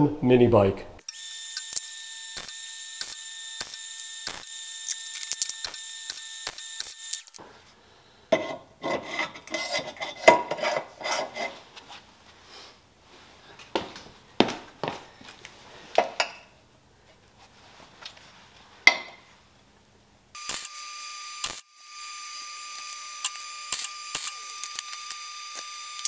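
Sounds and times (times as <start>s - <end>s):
welder crackling hiss: 1.5s - 7.4s, 20.4s - 26.0s.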